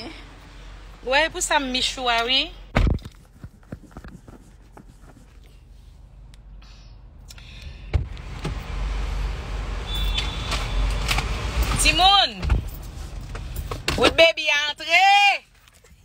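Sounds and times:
outside traffic hiss: 0.0s - 2.6s, 5.7s - 13.9s.

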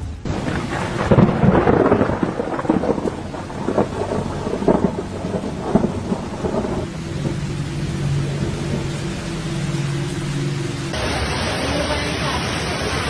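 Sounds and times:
heavy rain: 0.0s - 13.0s
wind crackling on microphone: 0.2s - 11.0s
rushing floodwater: 0.3s - 13.0s
low engine hum: 3.2s - 13.0s.

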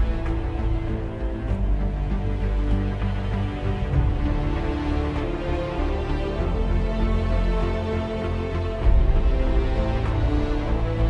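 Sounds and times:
soundtrack music with heavy bass: 0.0s - 11.0s.

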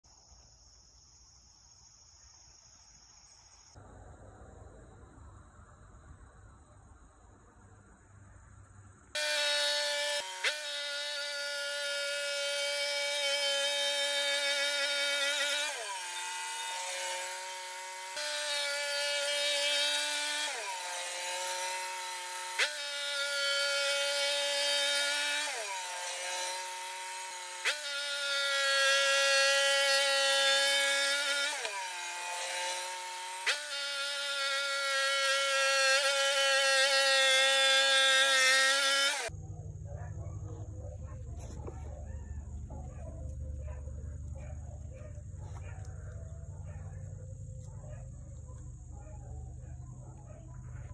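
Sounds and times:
bandsaw mill sawing log: 9.2s - 39.3s.

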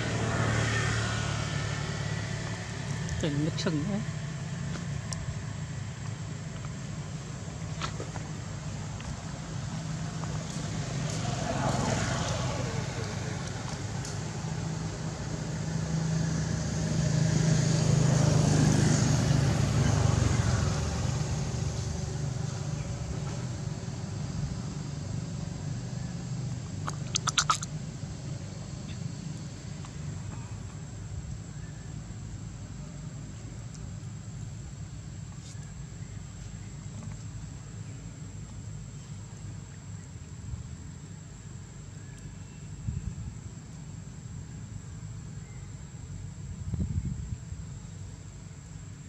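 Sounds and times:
vehicle engine humming past: 0.0s - 34.4s
low outdoor background rumble: 0.0s - 49.0s.

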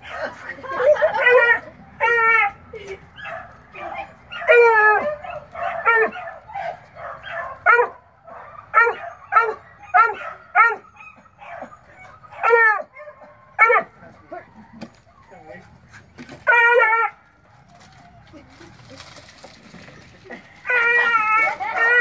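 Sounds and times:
dog yelping: 3.2s - 15.6s, 16.4s - 17.2s, 20.6s - 22.0s.

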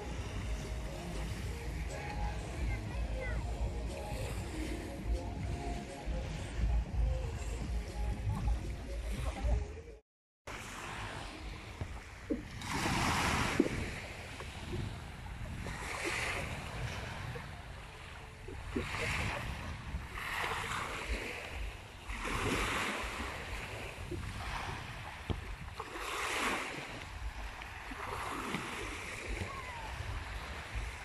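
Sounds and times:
small waves washing ashore: 0.0s - 9.7s, 10.5s - 31.0s
wind rumble on microphone: 10.8s - 31.0s.

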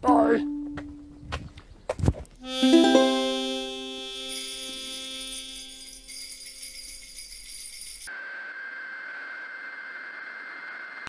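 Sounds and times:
high jingling: 4.2s - 8.1s.

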